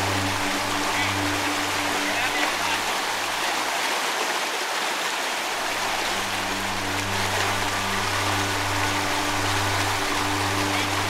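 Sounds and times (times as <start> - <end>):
water rushing over rocks: 0.0 - 11.0.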